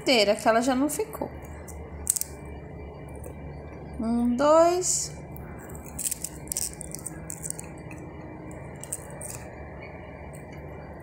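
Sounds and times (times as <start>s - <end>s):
faint low hum: 0.0s - 11.0s
onion rings crackling apart: 1.9s - 2.4s, 5.6s - 9.6s.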